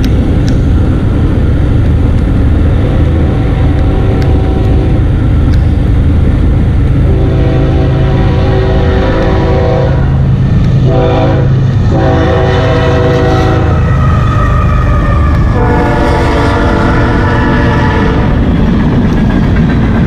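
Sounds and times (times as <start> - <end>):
freight train rumbling past: 0.0 - 20.0
locomotive air horn blasts: 2.8 - 5.1, 7.0 - 18.4.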